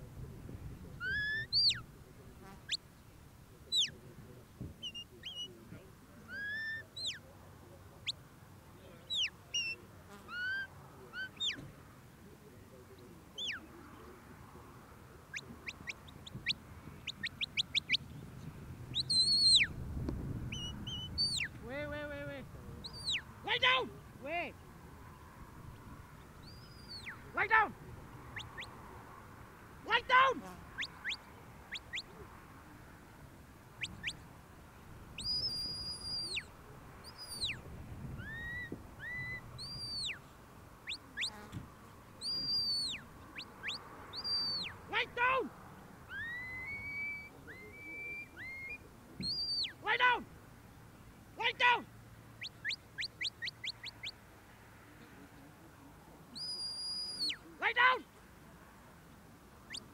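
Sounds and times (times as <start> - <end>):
whistle commands: 42.4 - 43.0, 43.7 - 44.7, 46.2 - 49.8, 56.4 - 57.4.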